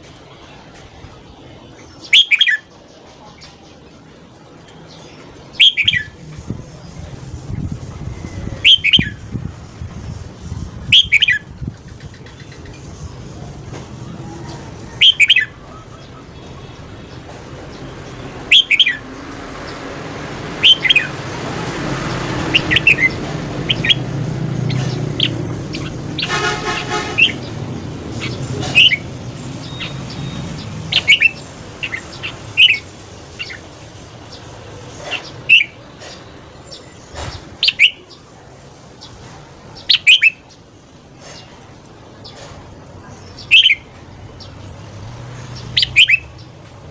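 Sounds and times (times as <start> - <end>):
vehicle passing: 5.2 - 39.9, 41.2 - 46.9
vehicle horn toot: 26.2 - 27.4.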